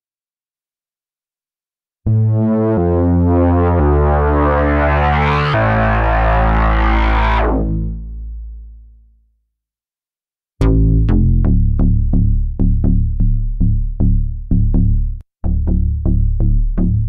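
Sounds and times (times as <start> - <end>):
punchy synth bass notes: 2.1 - 8.6, 10.6 - 17.0
held low synth bass: 2.1 - 8.8, 10.6 - 17.0.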